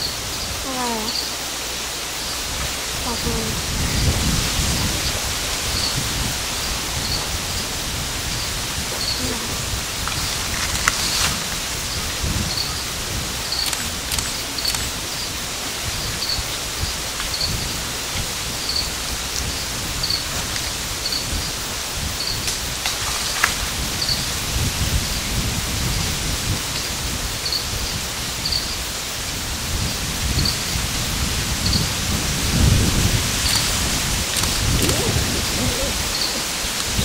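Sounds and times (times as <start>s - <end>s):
steady outdoor hiss: 0.0s - 37.0s
low rumbling: 29.9s - 37.0s.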